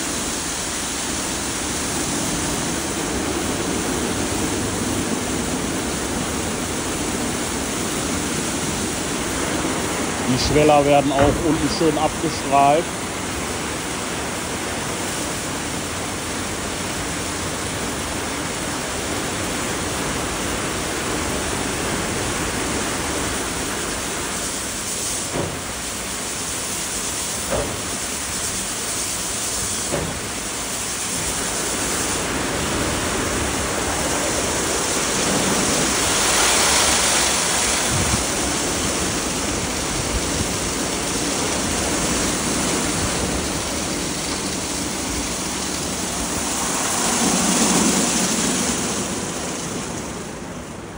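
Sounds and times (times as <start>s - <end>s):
high-pressure water jets spraying: 0.0s - 50.9s.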